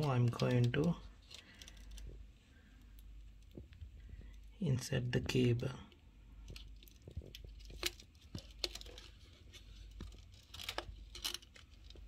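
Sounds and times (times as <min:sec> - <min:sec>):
plastic crinkling: 0:06.4 - 0:12.0.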